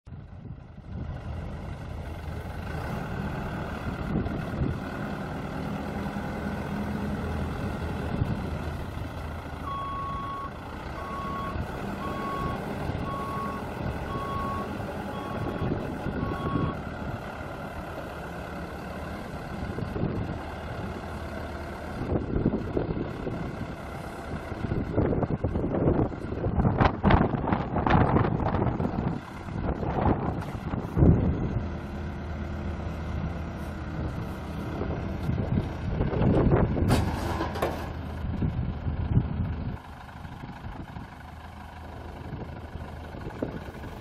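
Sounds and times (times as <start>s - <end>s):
diesel engine running: 0.1s - 44.0s
reversing alarm beeps: 9.6s - 16.8s.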